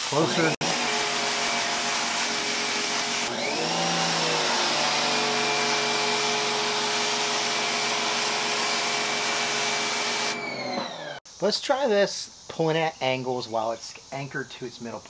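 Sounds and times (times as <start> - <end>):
pressure washer spray hissing: 0.0 - 3.3
pressure washer whine: 0.0 - 11.2.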